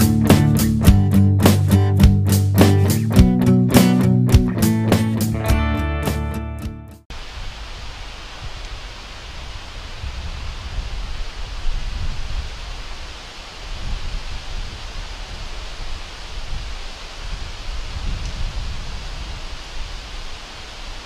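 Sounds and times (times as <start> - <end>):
wind buffeting microphone: 7.2 - 21.0.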